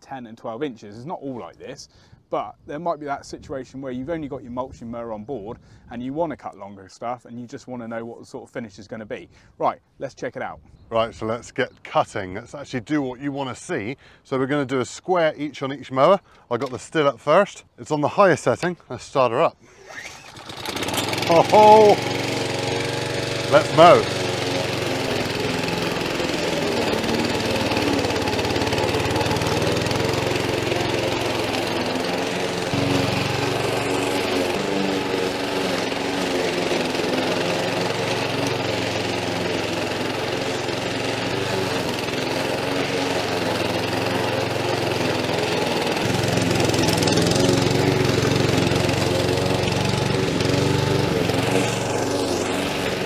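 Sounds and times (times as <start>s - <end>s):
lawn mower cutting grass: 19.8s - 53.0s.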